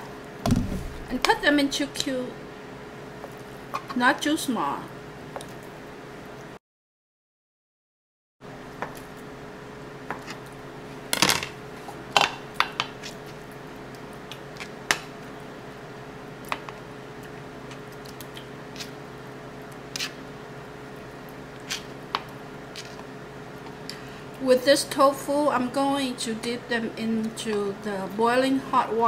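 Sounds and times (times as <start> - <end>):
steady hum: 0.0 - 6.5
knife knocking on cutting board: 0.5 - 1.3.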